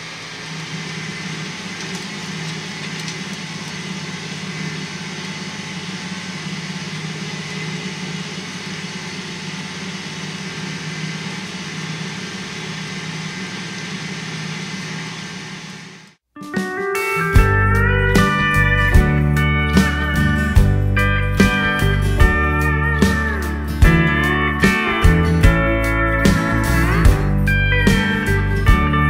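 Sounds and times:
tractor diesel engine running: 0.0s - 16.2s, 17.4s - 29.0s.

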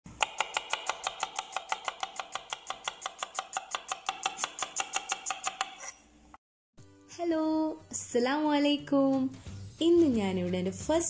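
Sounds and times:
knife chopping on cutting board: 0.1s - 5.9s.

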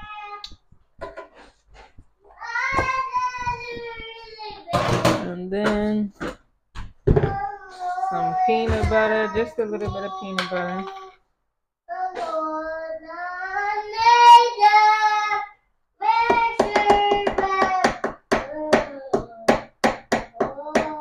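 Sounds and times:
child singing: 2.4s - 5.0s, 11.9s - 19.6s, 20.3s - 21.0s.

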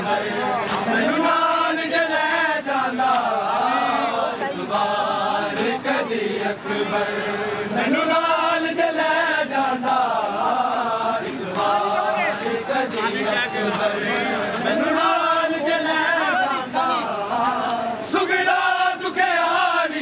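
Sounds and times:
men chanting a lament: 0.0s - 20.0s
hands slapping on chests: 0.6s - 0.9s, 3.0s - 4.1s, 9.7s - 14.8s.

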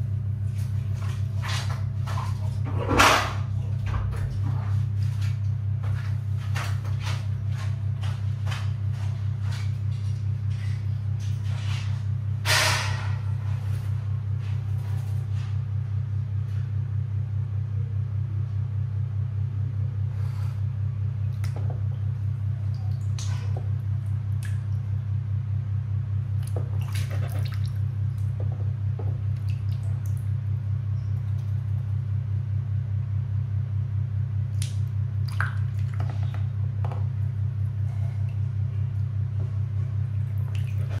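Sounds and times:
steady low hum: 0.0s - 41.0s
duck dabbling in water: 26.3s - 28.5s, 29.1s - 30.4s, 34.6s - 36.5s, 40.0s - 41.0s.

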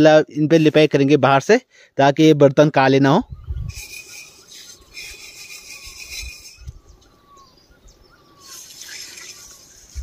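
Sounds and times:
scraping and rubbing: 3.7s - 6.8s, 8.4s - 10.0s.

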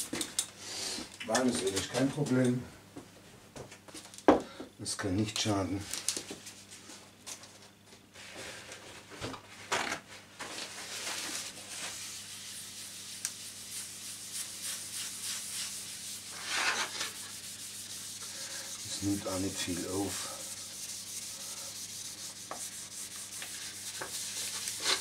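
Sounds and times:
paper towel rubbing on wood: 10.8s - 25.0s.

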